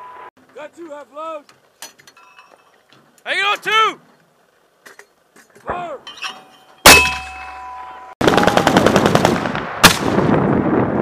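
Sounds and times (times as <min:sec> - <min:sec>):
machine gun automatic fire: 0:08.2 - 0:10.2
mortar firing blast: 0:08.2 - 0:11.0.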